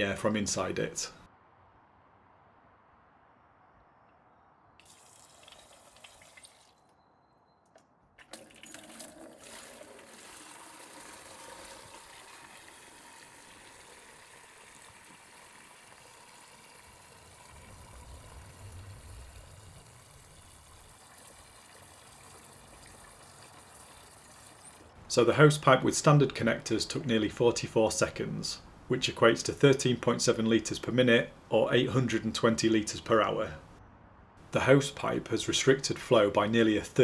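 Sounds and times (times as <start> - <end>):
hose water splashing into bucket: 4.8 - 6.8, 8.2 - 24.9.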